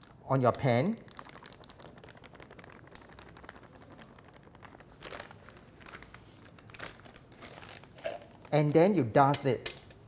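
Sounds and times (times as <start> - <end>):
plastic bag crinkling: 0.0 - 9.0
plastic bag rustles: 1.0 - 8.9.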